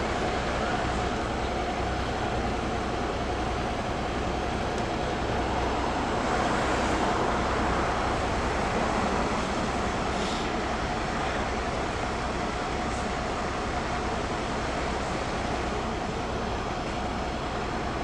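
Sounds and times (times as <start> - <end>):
engine rumble: 0.0 - 18.0
street traffic: 0.0 - 18.0.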